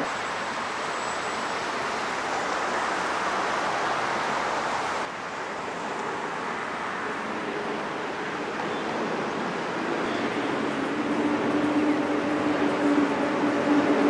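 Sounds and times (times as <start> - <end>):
stream running over stones: 0.0 - 6.9.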